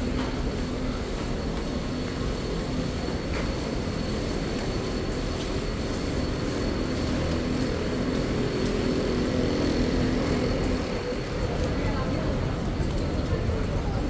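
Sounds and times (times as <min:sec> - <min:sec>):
low rumble of public space: 0:00.0 - 0:14.0
murmur of voices: 0:07.4 - 0:14.0.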